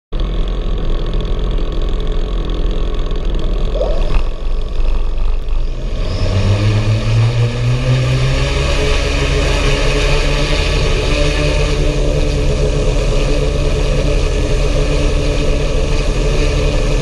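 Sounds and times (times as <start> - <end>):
drone rotors humming: 0.2 - 17.0
steady rushing noise: 3.1 - 7.0.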